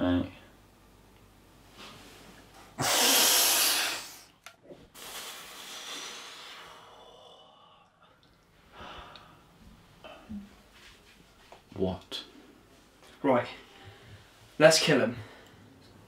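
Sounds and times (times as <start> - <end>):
person breathing: 4.9 - 10.3, 13.6 - 14.4.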